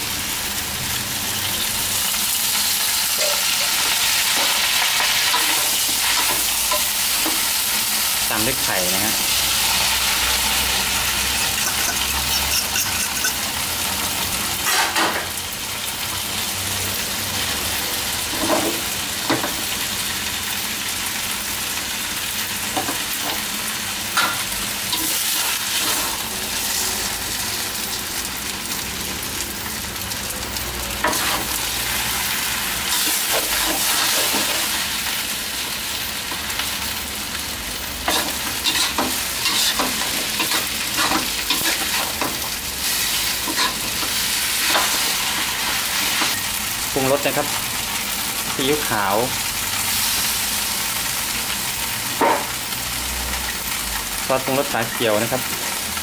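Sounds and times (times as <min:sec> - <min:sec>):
food sizzling in hot oil: 0:00.0 - 0:56.0
metal spatula scraping a pan: 0:11.3 - 0:13.5, 0:38.1 - 0:45.0.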